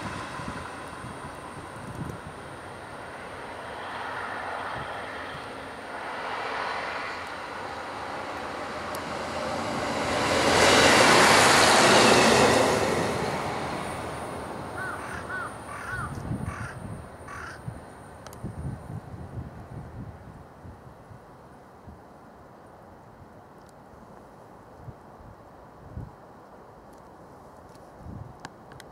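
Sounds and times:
diesel railcar passing: 0:00.0 - 0:23.6
crows cawing: 0:14.8 - 0:17.7.

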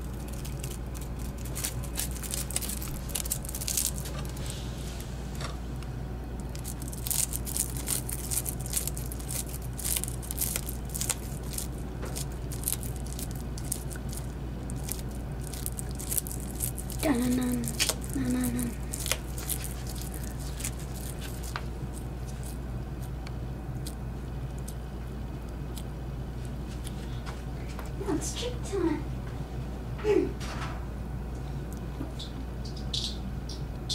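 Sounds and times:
lizard crunching insect shell: 0:00.0 - 0:04.5, 0:06.4 - 0:26.0
steady low hum: 0:00.0 - 0:33.9.

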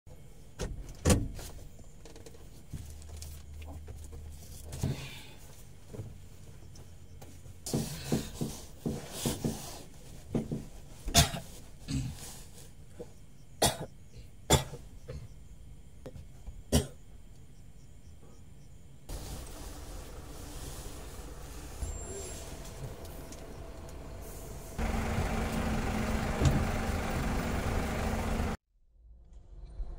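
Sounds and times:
sharp knocks or coughs: 0:11.1 - 0:12.2, 0:13.6 - 0:15.3, 0:16.7 - 0:17.0.

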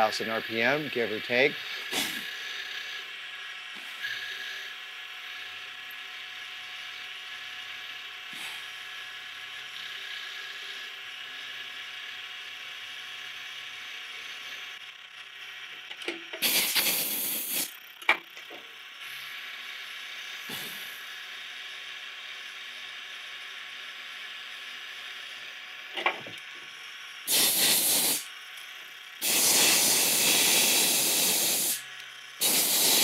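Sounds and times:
compressed air blast: 0:01.8 - 0:02.3, 0:08.3 - 0:08.7, 0:16.4 - 0:17.7, 0:20.5 - 0:20.9, 0:27.3 - 0:28.3, 0:29.2 - 0:31.8, 0:32.4 - 0:33.0.

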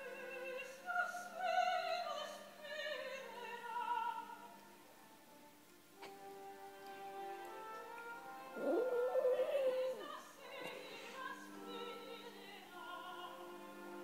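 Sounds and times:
opera music: 0:00.0 - 0:14.0
dog howling: 0:08.6 - 0:10.2.

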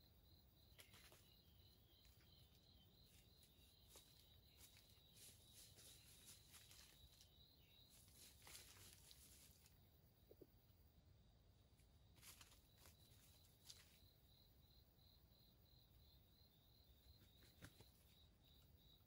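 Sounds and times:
insect chirping: 0:00.0 - 0:19.0
faint rustles: 0:00.8 - 0:09.8, 0:12.1 - 0:14.1.

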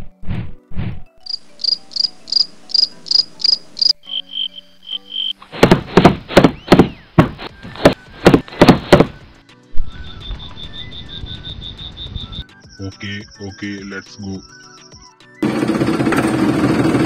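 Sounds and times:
high chirps: 0:01.2 - 0:05.4, 0:09.8 - 0:15.2
low thumps: 0:05.5 - 0:09.2.

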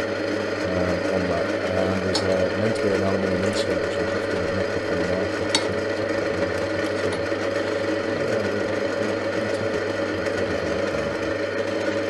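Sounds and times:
drill press motor running: 0:00.0 - 0:12.0.

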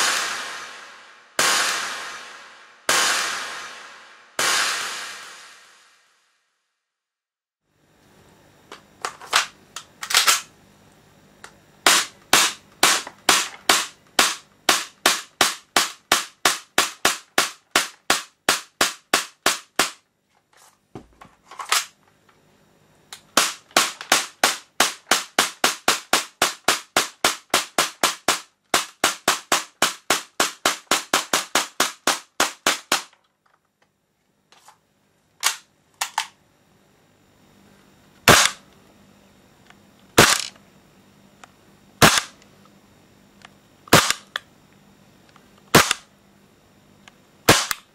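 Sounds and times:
airsoft pistol firing: 0:00.0 - 0:06.0, 0:11.8 - 0:20.0, 0:23.3 - 0:33.1, 0:38.2 - 0:38.6, 0:40.2 - 0:40.6, 0:42.0 - 0:42.4, 0:43.9 - 0:44.4, 0:45.7 - 0:46.1, 0:47.5 - 0:47.9.

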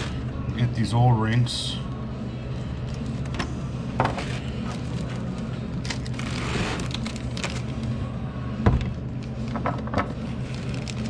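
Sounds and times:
steady low hum: 0:00.0 - 0:11.0
plastic bag crinkling: 0:04.4 - 0:07.9, 0:10.3 - 0:11.0.

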